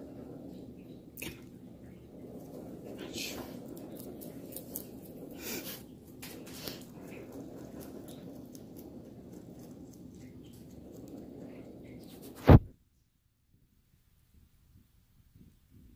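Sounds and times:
rabbit chewing greens: 0.0 - 12.6
loud thump: 12.4 - 12.7.

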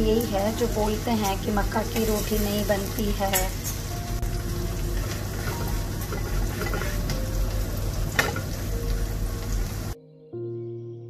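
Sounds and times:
flatbread sizzling on griddle: 0.0 - 10.0.

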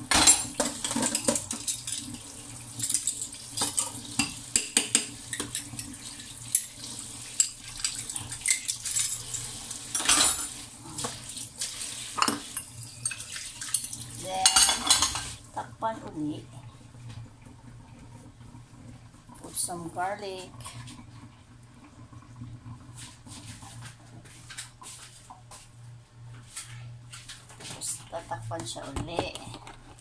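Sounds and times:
kitchenware clinking and knocking: 0.0 - 2.1, 7.9 - 11.2, 13.9 - 15.4.

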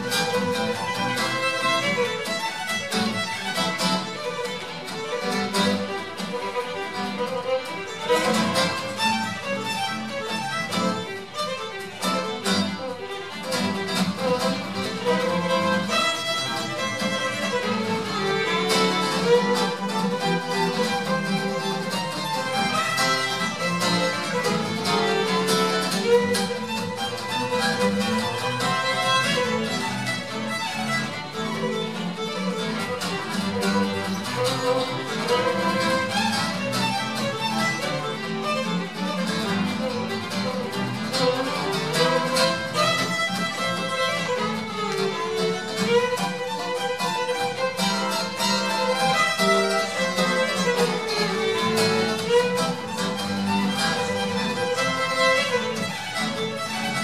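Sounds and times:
acoustic guitar accompaniment: 0.0 - 57.0
fiddle playing melody: 0.0 - 57.0.

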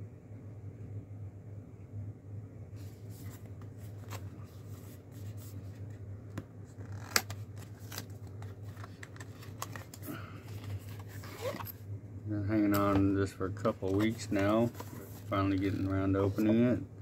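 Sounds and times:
steady low hum: 0.0 - 17.0
cardboard scraping and rubbing: 2.8 - 6.0, 13.8 - 16.7.

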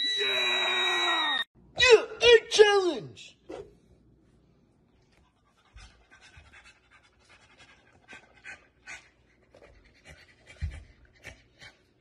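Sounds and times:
dog panting: 5.1 - 12.0.

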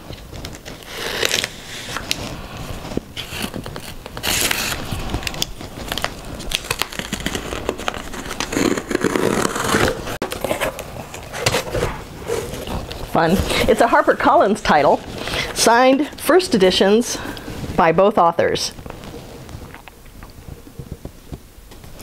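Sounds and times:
packing tape tearing: 0.1 - 15.6
cardboard clicks and crinkling: 0.1 - 16.1.

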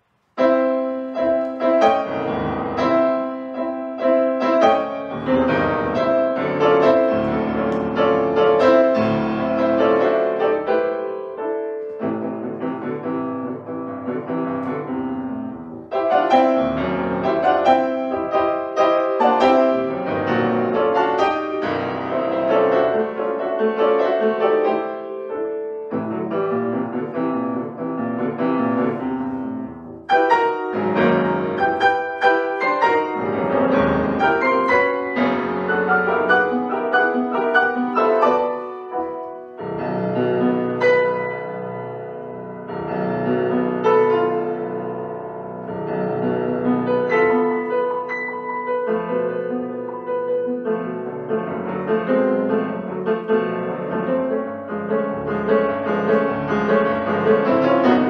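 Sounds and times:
grand piano playing: 0.0 - 58.0.

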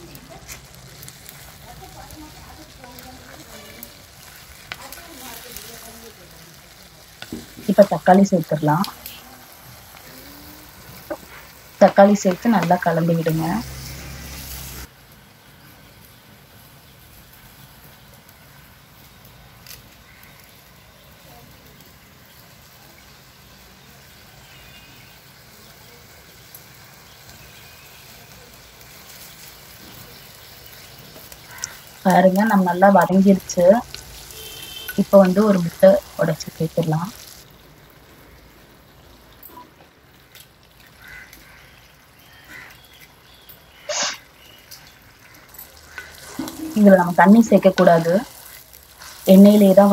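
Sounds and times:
egg sizzling in hot oil: 0.0 - 49.9
fire burning low rumble: 0.0 - 49.9
fire crackle: 0.0 - 49.9
egg cracking: 31.3 - 32.0.

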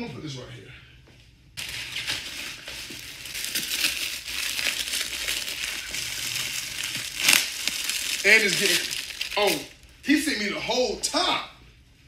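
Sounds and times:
plastic bag crinkling: 1.6 - 9.9.

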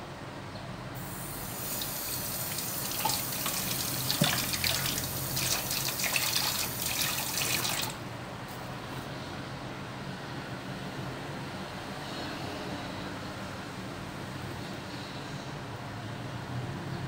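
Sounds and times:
tap running into steel sink: 2.5 - 6.7.

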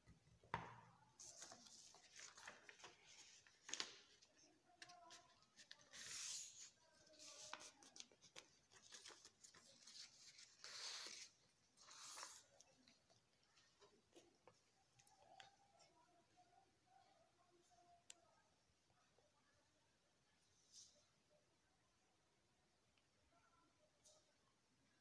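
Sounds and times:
paper rustling and crackling: 1.2 - 14.3.

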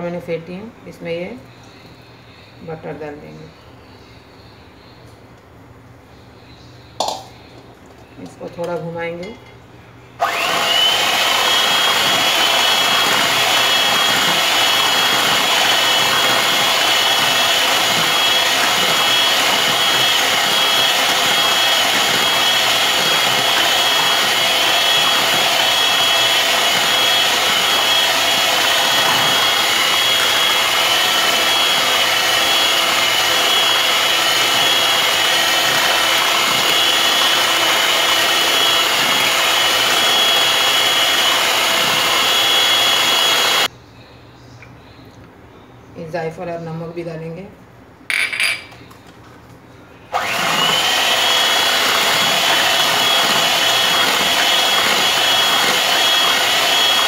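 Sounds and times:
electric hand mixer whining: 10.2 - 43.7, 50.1 - 57.0.

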